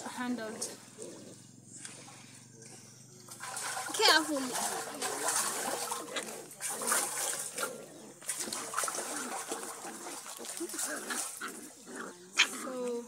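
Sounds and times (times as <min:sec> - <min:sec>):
hands scrubbing and splashing water: 0:03.3 - 0:11.8.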